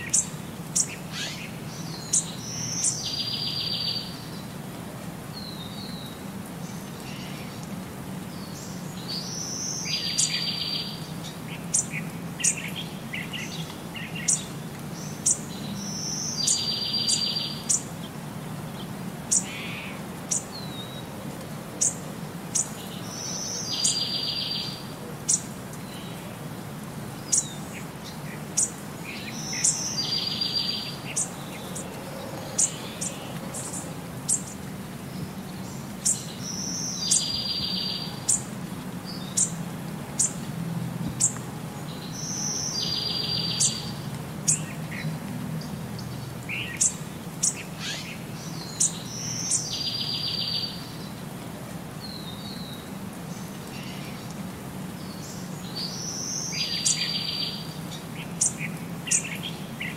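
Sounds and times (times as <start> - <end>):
birds chirping: 27.1 - 40.5, 41.1 - 51.2.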